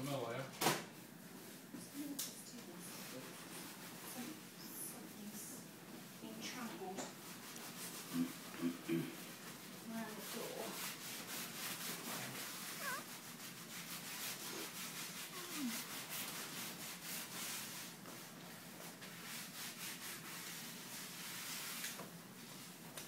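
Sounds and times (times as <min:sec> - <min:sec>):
rustling and rubbing noise: 0:09.2 - 0:23.0
newborn baby whimpering: 0:12.6 - 0:13.1.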